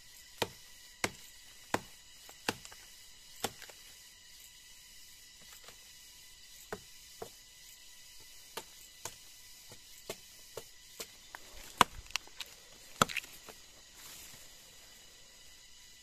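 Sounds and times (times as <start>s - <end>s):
machete chopping into log: 0.4s - 2.8s, 3.4s - 3.7s, 8.6s - 12.3s, 12.9s - 13.5s.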